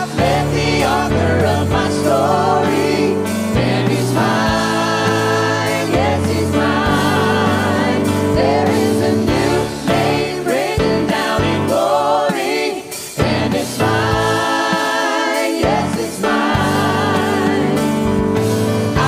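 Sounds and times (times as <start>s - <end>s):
group singing gospel song: 0.0s - 19.0s
instrumental accompaniment: 0.0s - 19.0s.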